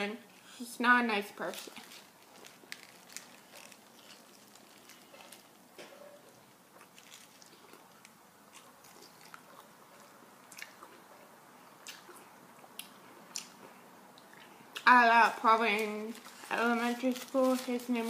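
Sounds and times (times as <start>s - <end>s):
person chewing food: 1.7s - 5.6s, 6.7s - 14.8s.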